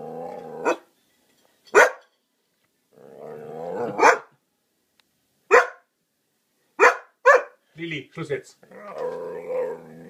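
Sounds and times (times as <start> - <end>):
dog growling: 0.0 - 0.8, 2.9 - 4.1, 8.6 - 10.0
dog barking: 0.6 - 0.9, 1.7 - 2.0, 4.0 - 4.3, 5.5 - 5.9, 6.8 - 7.6.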